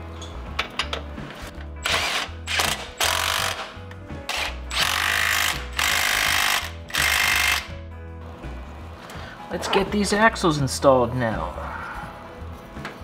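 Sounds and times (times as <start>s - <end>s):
electric ratchet bursts: 1.8s - 7.7s.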